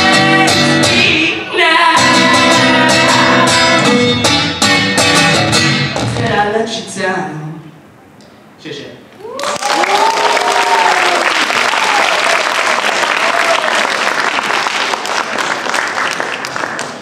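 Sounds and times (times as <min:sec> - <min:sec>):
whooping cheers: 0:09.2 - 0:14.0
audience applause: 0:09.3 - 0:17.0.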